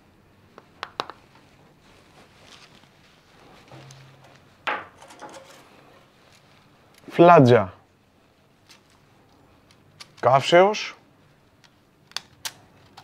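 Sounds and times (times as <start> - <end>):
metal parts clattering: 4.9 - 5.8.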